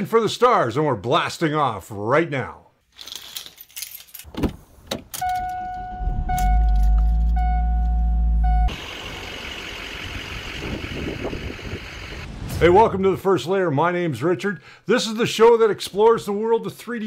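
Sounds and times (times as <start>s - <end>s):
keys jingling: 2.9s - 4.4s
car engine rumbling: 4.3s - 13.2s
car warning chime beeping: 5.2s - 8.8s.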